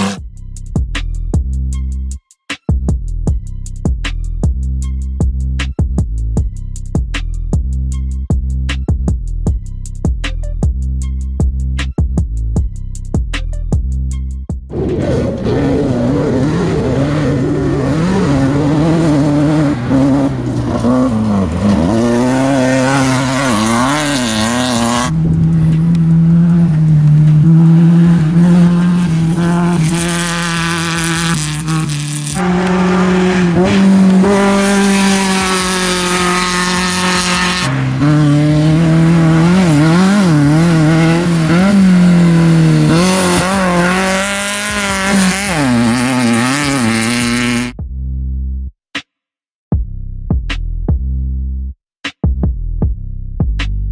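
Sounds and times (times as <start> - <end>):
race vehicle engines revving: 0.0 - 0.2, 14.7 - 47.7.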